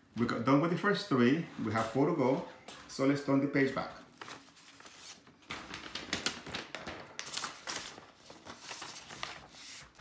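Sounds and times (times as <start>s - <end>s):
paper rustling: 3.9s - 10.0s.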